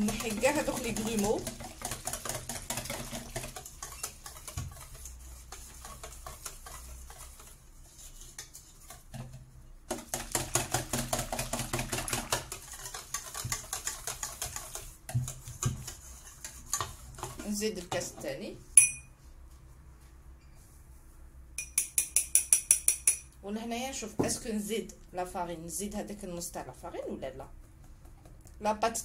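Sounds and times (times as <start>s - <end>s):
wire whisk ticking against metal bowl: 0.0s - 7.4s, 21.6s - 23.3s.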